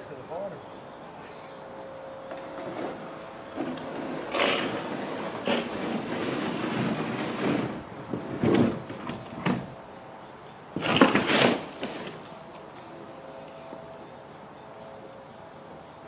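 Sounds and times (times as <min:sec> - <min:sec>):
wooden panels scraping and knocking: 0:02.4 - 0:09.7, 0:10.8 - 0:12.3.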